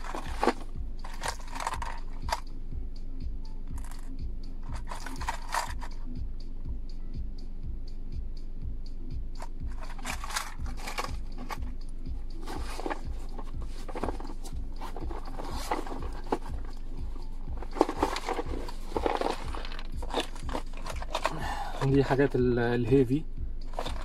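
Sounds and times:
plastic tackle boxes clattering: 0.0s - 2.4s, 4.7s - 5.9s, 9.8s - 11.6s, 12.4s - 16.8s, 17.6s - 22.1s, 23.7s - 24.0s
background music with low beat: 0.0s - 24.0s.

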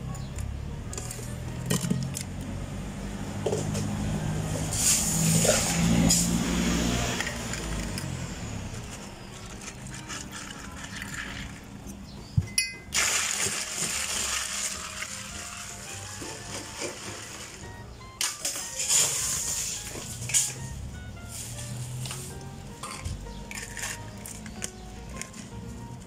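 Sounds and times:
clinking of cups and utensils: 0.9s - 2.3s, 9.4s - 11.7s, 12.4s - 17.4s, 22.8s - 25.5s.

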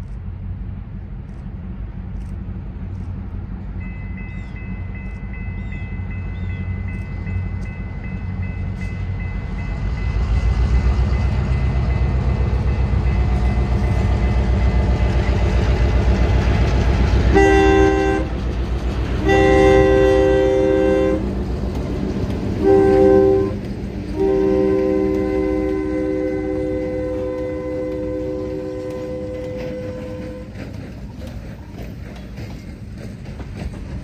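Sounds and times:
diesel train engines rumbling: 0.0s - 34.0s
train air horn blasts: 17.3s - 18.4s, 19.2s - 21.4s, 22.6s - 30.7s.

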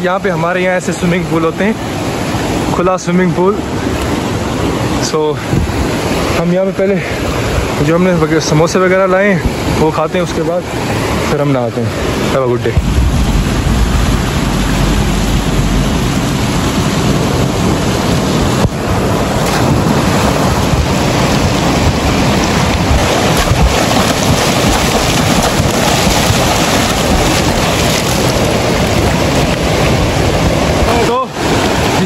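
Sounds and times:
river rushing over rocks: 0.0s - 32.0s.

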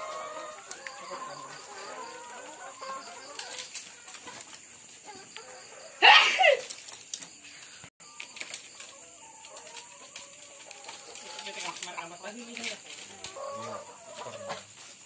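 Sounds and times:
hens pecking metal trough: 8.2s - 14.8s.

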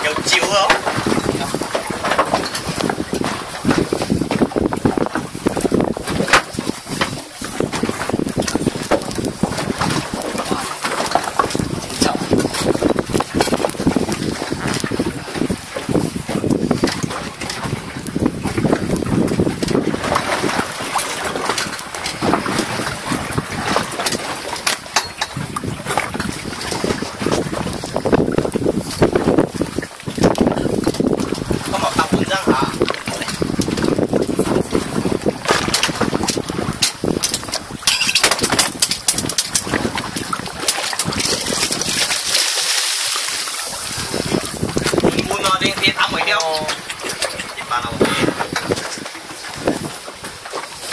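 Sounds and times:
wind buffeting microphone: 0.0s - 50.9s
fish thrashing at the surface: 31.2s - 50.9s.

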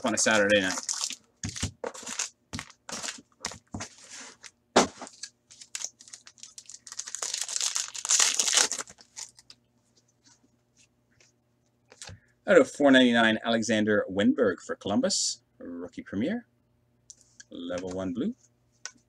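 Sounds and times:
card pack wrappers crinkling: 0.0s - 9.6s
wrapper tearing: 0.1s - 3.2s, 5.1s - 9.5s.

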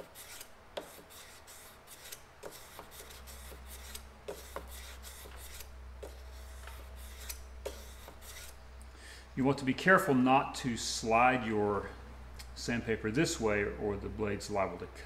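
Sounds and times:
sandpaper scraping a blade: 0.0s - 8.6s.

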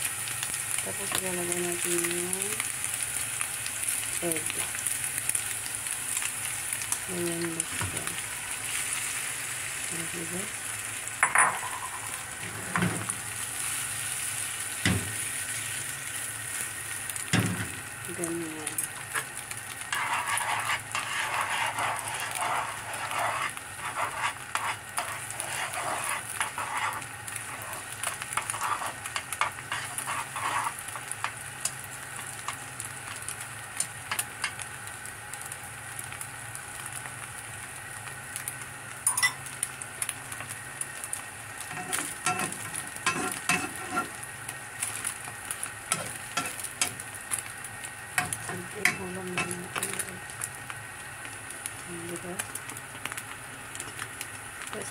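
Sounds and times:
egg sizzling in oil: 0.0s - 54.9s
utensils scraping a pan: 19.8s - 31.0s, 41.7s - 44.2s, 45.9s - 47.0s, 48.2s - 50.0s.

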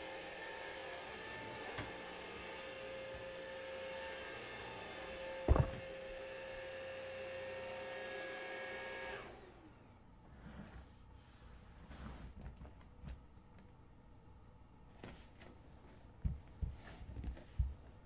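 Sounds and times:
stick vacuum cleaner whine: 0.0s - 10.0s
loud knock: 5.5s - 5.8s.

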